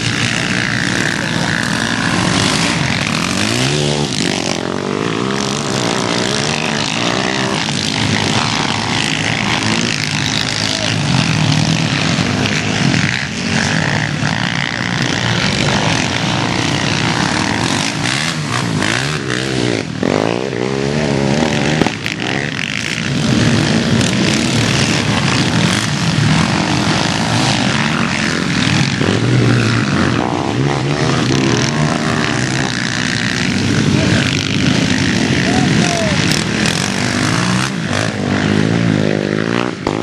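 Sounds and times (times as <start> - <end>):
quad bike engines revving: 0.0 - 40.0.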